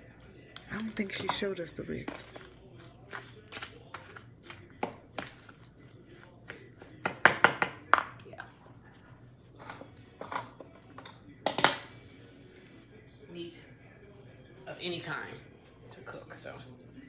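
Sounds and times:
metal spoon scraping plastic bowl: 1.0 - 7.0.

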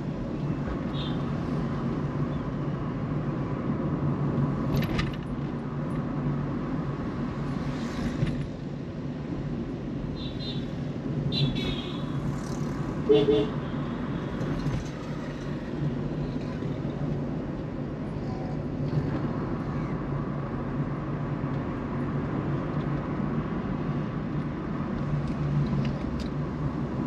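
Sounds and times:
car engine and tyre rumble: 0.0 - 27.0.

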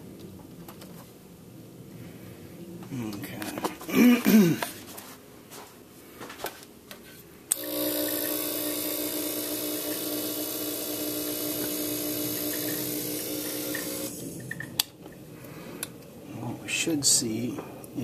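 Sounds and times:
smoke machine buzzing hum and hiss: 7.4 - 18.0.

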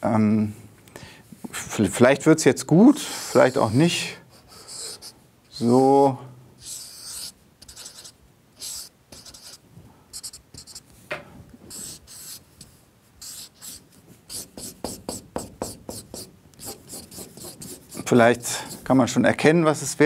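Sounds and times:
marker scratching on paper: 3.2 - 5.7, 6.6 - 10.8, 11.7 - 19.0.

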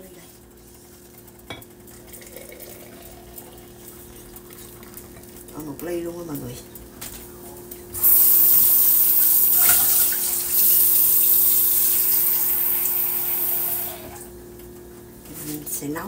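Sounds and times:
faucet water running into sink: 8.0 - 14.3.

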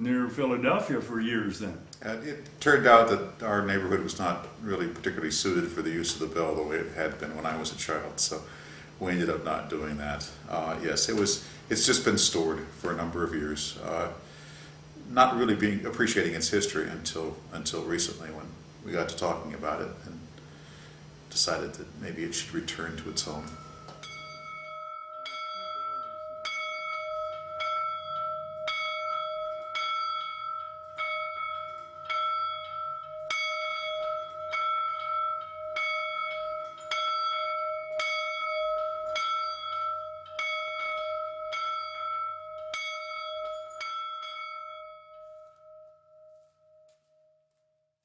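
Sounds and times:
school bell ringing: 22.6 - 46.9.

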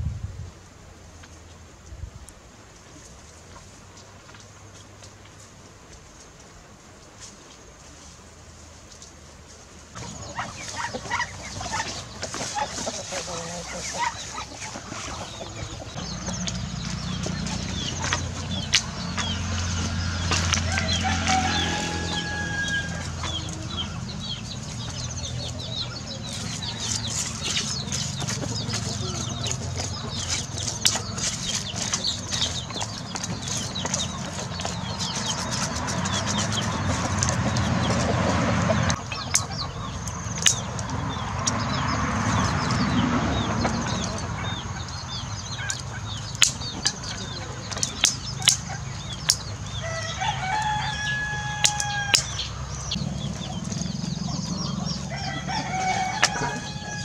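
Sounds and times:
chickens clucking: 9.9 - 57.0
rooster crowing: 20.2 - 24.0, 49.8 - 52.5, 54.7 - 57.0.

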